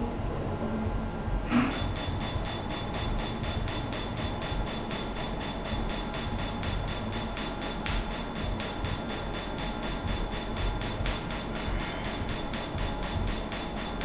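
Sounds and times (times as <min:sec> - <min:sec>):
laser snapping clicks: 0:05.8 - 0:13.8.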